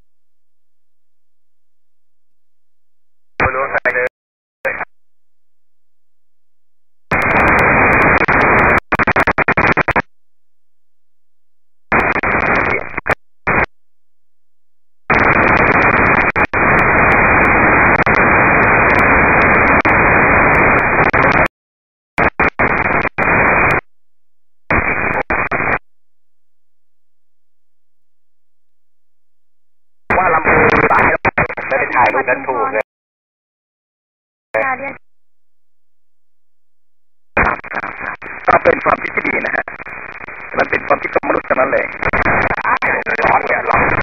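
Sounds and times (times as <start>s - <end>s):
radio static bursts: 3.4s - 4.1s, 4.7s - 4.9s, 7.1s - 10.1s, 11.9s - 13.7s, 15.1s - 21.5s, 22.2s - 23.9s, 24.7s - 25.8s, 30.1s - 32.8s, 37.4s - 44.0s.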